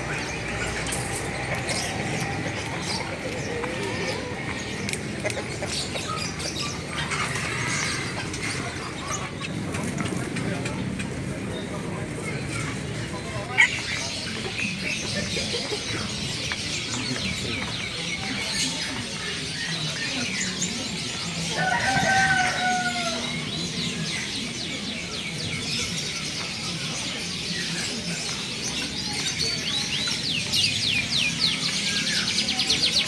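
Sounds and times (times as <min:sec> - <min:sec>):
small birds chirping: 0:00.0 - 0:33.0
rooster crowing: 0:21.6 - 0:23.3.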